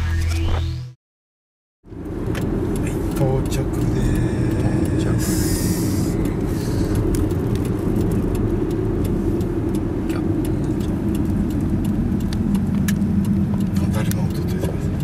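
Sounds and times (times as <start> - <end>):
car engine and road rumble: 1.8 - 15.0
faint ticks: 2.3 - 15.0.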